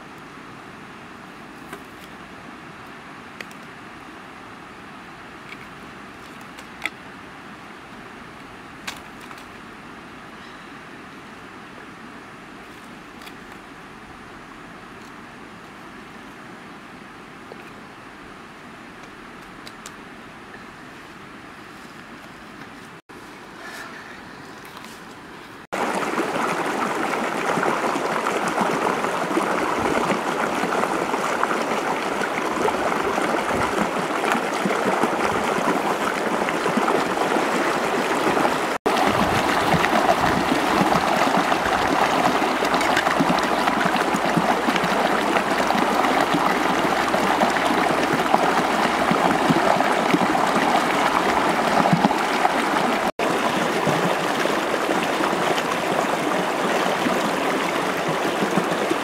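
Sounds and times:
river running over rocks: 0:25.7 - 0:59.0.

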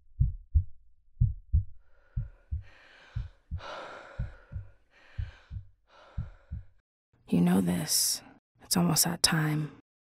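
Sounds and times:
heartbeat thudding: 0:00.0 - 0:06.8
woman breathing heavily: 0:01.8 - 0:06.8.

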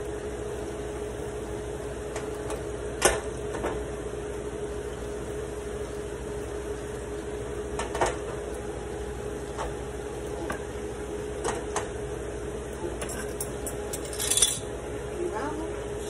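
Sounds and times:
steady hum: 0:00.0 - 0:16.0
glass bowls and cutlery clinking: 0:13.0 - 0:14.7.

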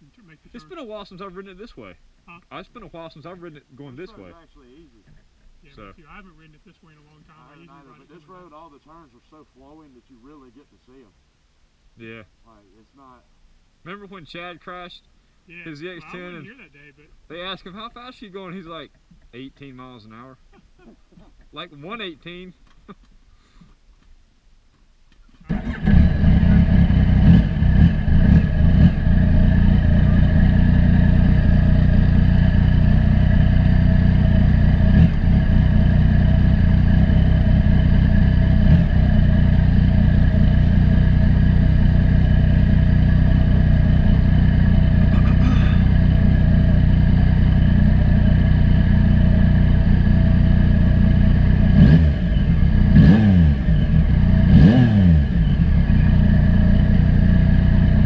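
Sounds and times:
motorcycle engine running: 0:25.5 - 0:58.0.

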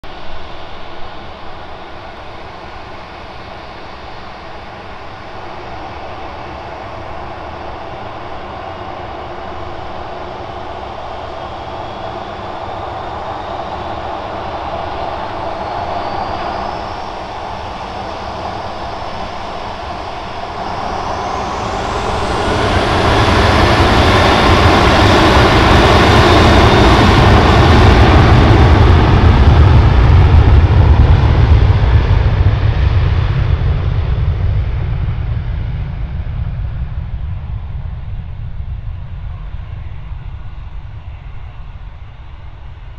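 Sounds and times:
jet engine whine: 0:00.0 - 0:42.9
jet engines spooling up: 0:00.1 - 0:42.9.

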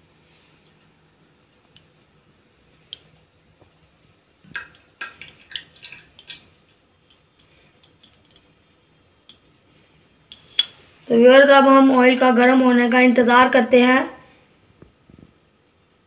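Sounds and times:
oil clinking and dripping: 0:03.6 - 0:09.7.

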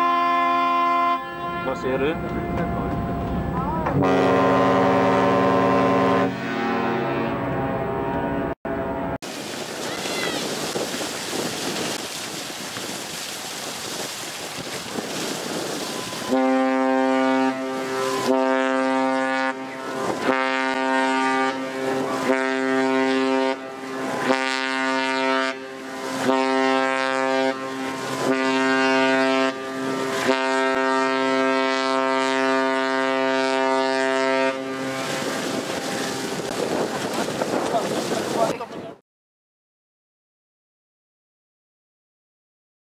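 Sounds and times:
ship's horn long deep blast: 0:00.0 - 0:09.2, 0:15.7 - 0:36.5.

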